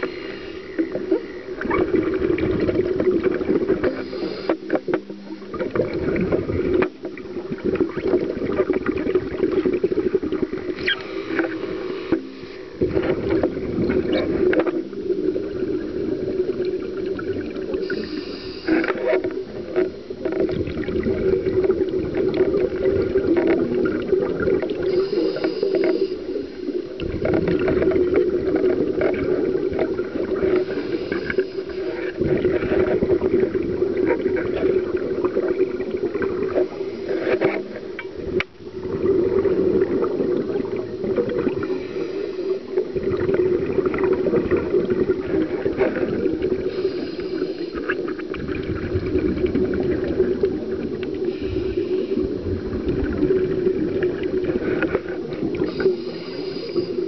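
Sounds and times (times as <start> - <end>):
diver breathing through regulator: 0.0 - 1.0, 3.9 - 4.8, 10.8 - 12.8, 17.8 - 19.1, 24.9 - 26.6, 30.5 - 32.3, 41.6 - 42.7, 46.6 - 48.0, 51.2 - 52.4, 55.6 - 57.0
bubbling exhaled air: 5.4 - 19.8, 20.4 - 57.0.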